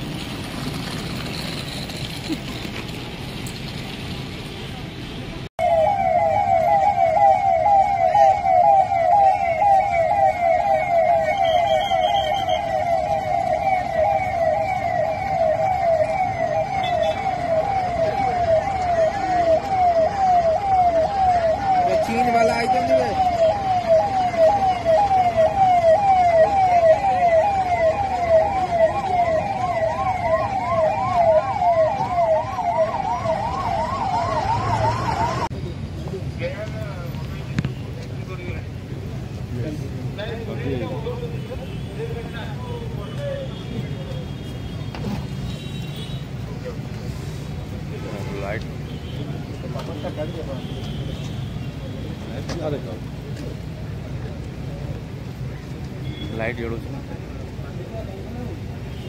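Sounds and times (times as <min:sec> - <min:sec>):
passing traffic rumble: 0:00.0 - 0:59.0
vehicle siren sweeping: 0:05.6 - 0:35.5.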